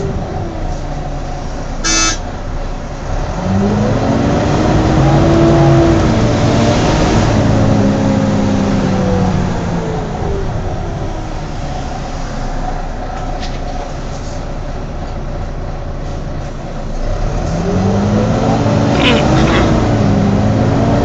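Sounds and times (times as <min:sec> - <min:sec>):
bus diesel engine pulling away: 0:00.0 - 0:21.0
short horn toot: 0:01.8 - 0:02.2.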